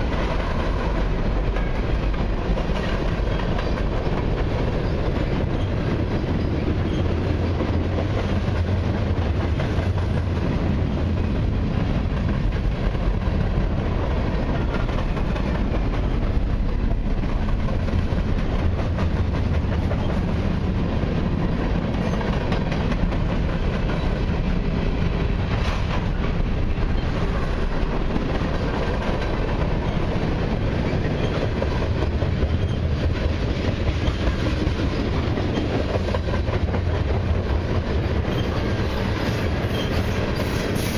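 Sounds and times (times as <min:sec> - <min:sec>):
freight train cars rolling past: 0:00.0 - 0:40.9.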